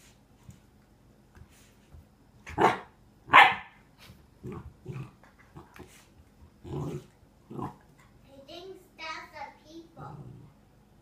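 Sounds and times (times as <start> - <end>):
puppy barking: 2.5 - 3.8.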